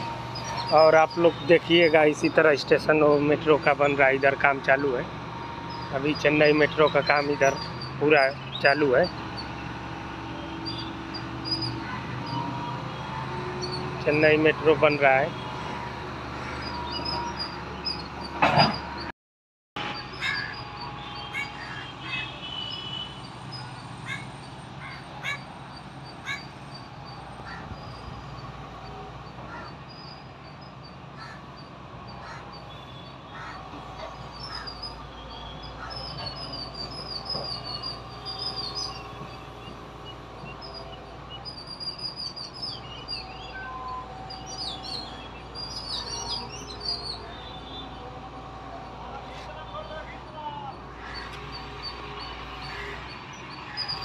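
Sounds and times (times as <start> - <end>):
birds chirping: 0.0 - 19.1, 19.9 - 48.2, 48.9 - 54.0
outdoor background noise: 0.0 - 19.1, 19.8 - 54.0
crows cawing: 11.7 - 12.3, 15.7 - 16.8, 20.2 - 20.6, 21.3 - 22.3, 24.0 - 25.4, 26.2 - 26.5, 27.4 - 27.8, 29.4 - 29.8, 31.2 - 31.5, 32.2 - 32.6, 33.3 - 34.8, 35.8 - 36.1, 50.9 - 51.6, 52.6 - 53.8.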